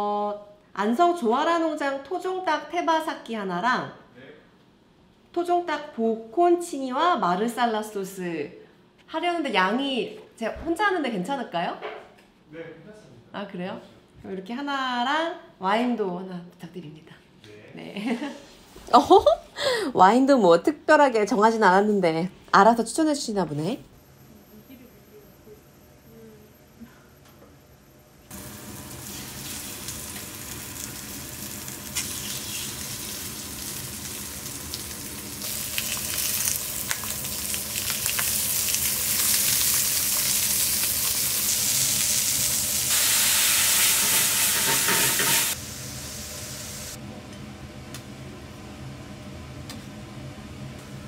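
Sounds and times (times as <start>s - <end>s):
meat sizzling in a frying pan: 28.3s - 47.0s.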